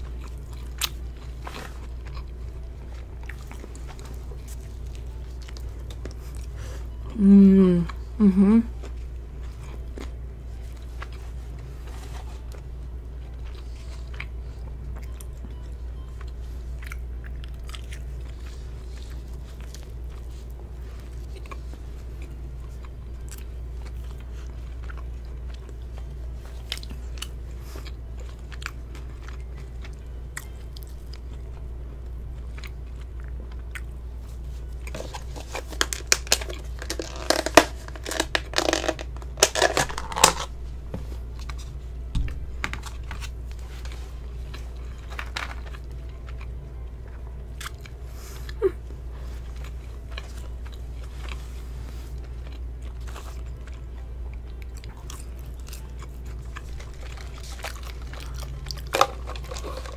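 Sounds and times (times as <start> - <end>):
chewing and mouth clicks: 13.3 - 31.6, 32.3 - 36.9, 44.4 - 48.6, 52.2 - 59.9.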